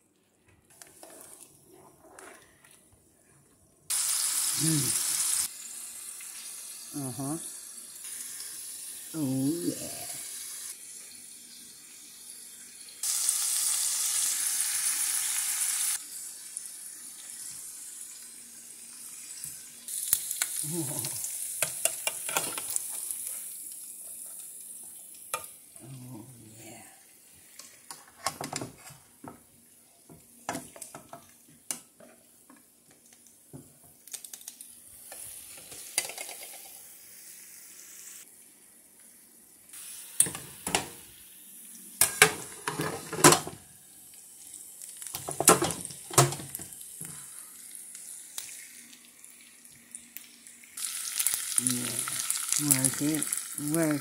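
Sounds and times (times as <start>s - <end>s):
loud steady hiss: 3.9s - 5.8s
steaks sizzling in frying pan: 3.9s - 25.8s, 35.0s - 54.0s.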